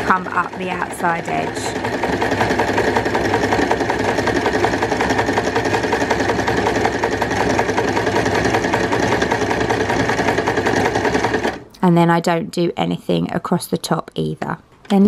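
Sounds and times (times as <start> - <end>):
sewing machine stitching: 0.0 - 11.7.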